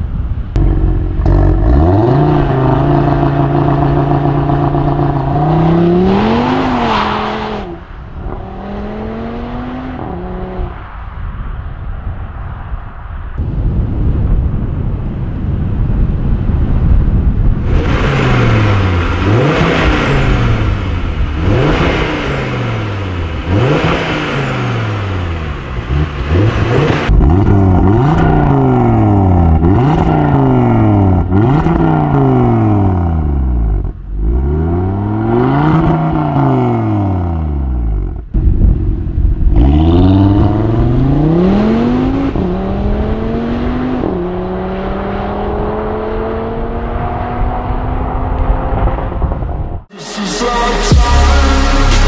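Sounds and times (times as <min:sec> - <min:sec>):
car accelerating away: 0:00.6 - 0:10.7, 0:17.7 - 0:38.1, 0:39.5 - 0:49.7
car engine revving: 0:00.6 - 0:10.8, 0:17.6 - 0:52.0.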